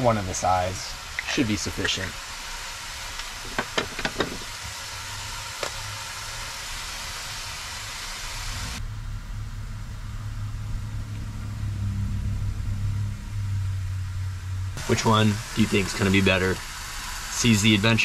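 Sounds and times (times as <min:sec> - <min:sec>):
meat sizzling in pan: 0:00.0 - 0:08.8, 0:14.8 - 0:18.0
vehicle engine idling: 0:07.8 - 0:18.0.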